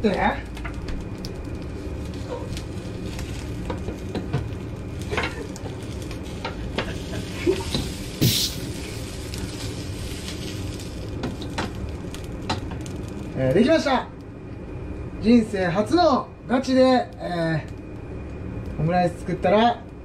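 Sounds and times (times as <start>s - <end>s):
rice and egg sizzling in a pan: 0.0s - 14.2s.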